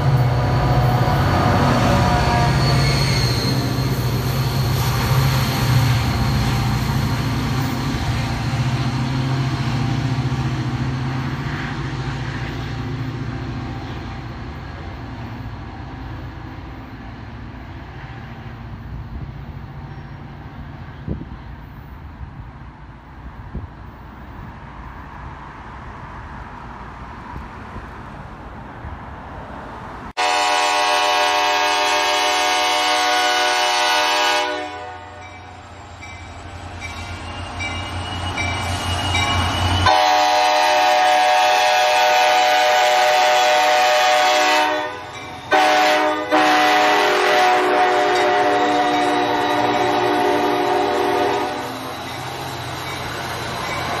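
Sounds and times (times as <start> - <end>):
train running on rails: 0.0 - 54.0
train horn blasts: 1.0 - 3.9, 30.2 - 35.3, 39.8 - 51.8.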